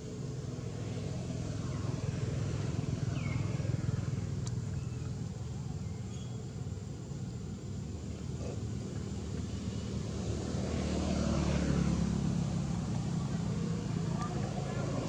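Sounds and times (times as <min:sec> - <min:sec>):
passing engine drone: 0:09.0 - 0:15.0.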